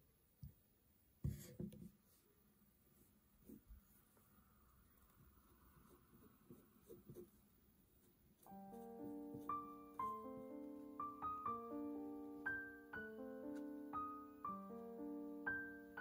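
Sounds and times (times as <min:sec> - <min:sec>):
paintbrush dabbing glue: 0:04.9 - 0:11.2
soft solo piano music: 0:08.4 - 0:16.0.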